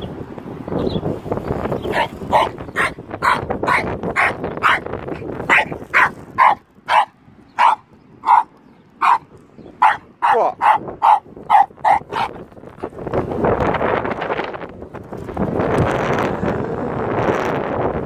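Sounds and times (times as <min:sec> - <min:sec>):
wind rumble on microphone: 0:00.0 - 0:18.0
dog barking: 0:01.9 - 0:04.9, 0:05.5 - 0:12.4.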